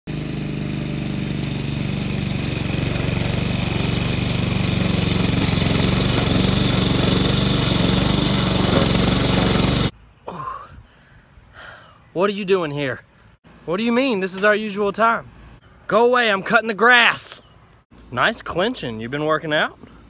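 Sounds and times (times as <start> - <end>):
lawn mower engine running: 0.1 - 9.9.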